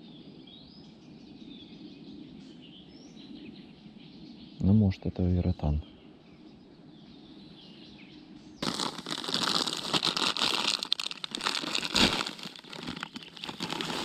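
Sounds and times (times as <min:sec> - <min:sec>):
faint outdoor background: 0:00.0 - 0:14.0
plastic bags crinkling: 0:08.6 - 0:14.0.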